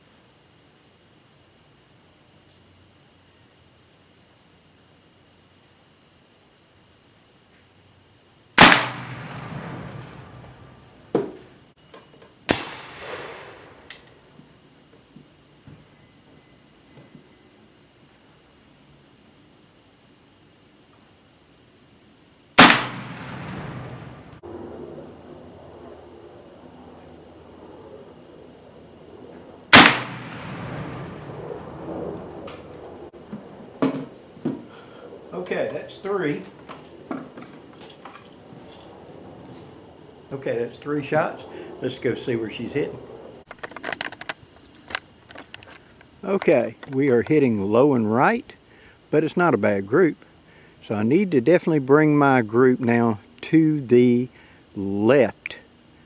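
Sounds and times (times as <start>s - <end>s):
gunshots: 8.6s - 10.5s, 12.5s - 13.9s, 22.6s - 24.4s, 29.7s - 31.4s
rifle shot with echo: 8.6s - 10.7s, 12.5s - 13.9s, 22.6s - 24.4s, 29.7s - 31.5s.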